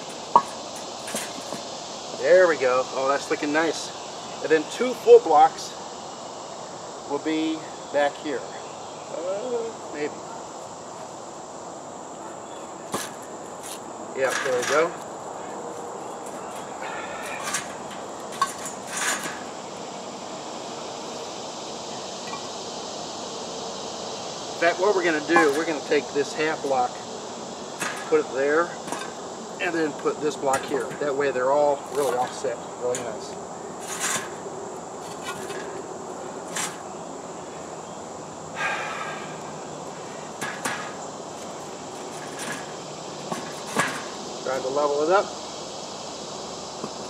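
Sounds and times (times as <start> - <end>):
concrete blocks scraping: 0.0 - 1.7, 16.2 - 19.6, 33.8 - 34.4, 35.0 - 36.8, 39.9 - 44.2
high buzz of insects: 0.0 - 47.0.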